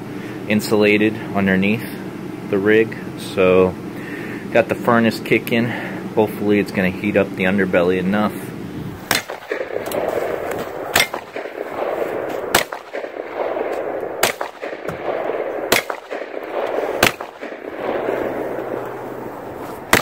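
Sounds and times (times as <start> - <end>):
steady background rush: 0.0 - 20.0
gunshots: 9.0 - 20.0.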